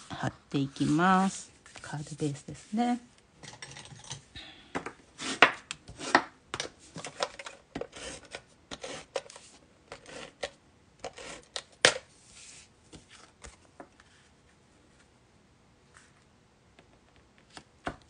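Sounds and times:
card sliding on a crafting mat: 12.2s - 13.2s.

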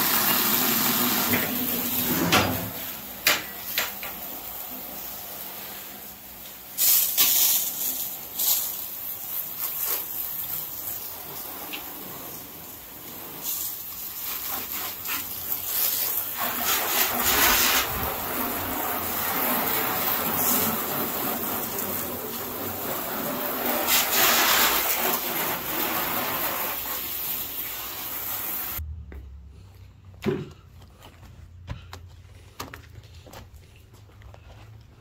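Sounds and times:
water spraying on car: 0.0s - 28.8s.

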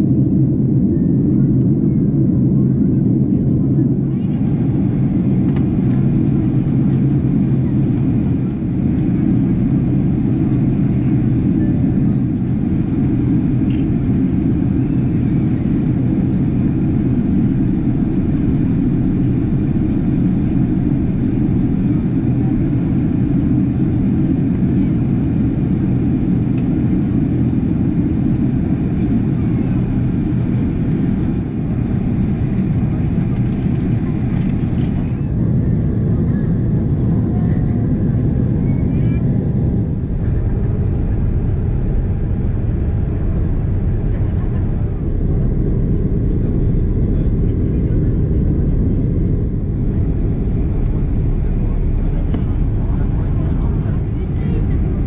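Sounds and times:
airliner cabin engine rush: 0.0s - 55.0s.

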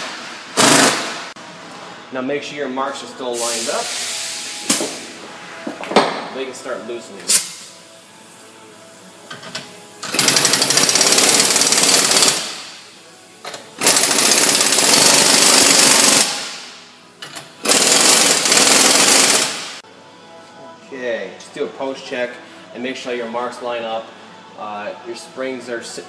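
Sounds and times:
pneumatic impact wrench hammering: 0.0s - 1.3s, 9.3s - 12.8s, 13.5s - 19.8s.

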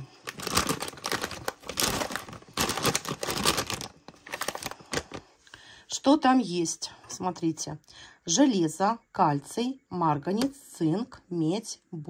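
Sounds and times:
plastic packet crinkling: 0.0s - 5.3s.

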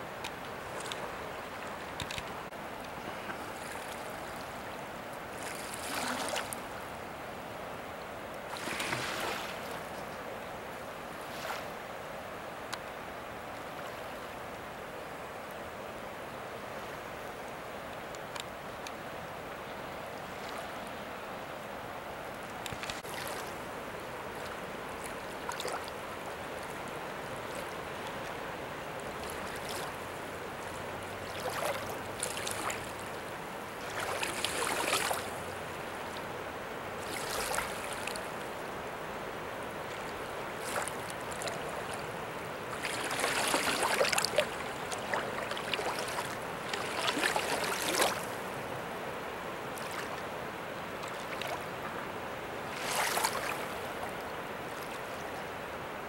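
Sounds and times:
floodwater flowing: 0.0s - 56.0s
bursts of rushing water: 40.6s - 48.4s.

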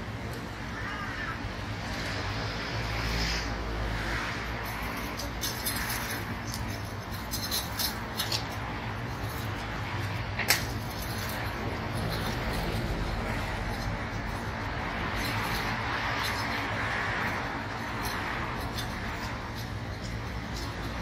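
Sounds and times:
low street hum: 0.0s - 21.0s.

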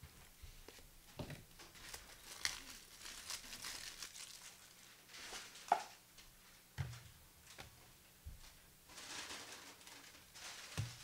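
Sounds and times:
foil wrappers crinkling and tearing: 1.6s - 5.7s, 8.9s - 11.0s.

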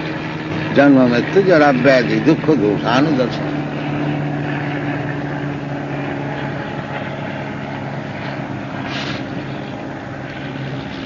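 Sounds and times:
short bright hiss: 8.9s - 9.3s.

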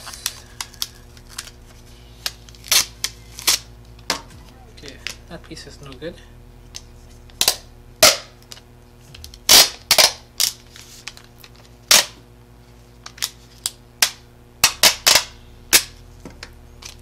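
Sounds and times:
packing tape ripping: 0.0s - 3.7s, 7.3s - 12.2s, 13.0s - 16.0s.

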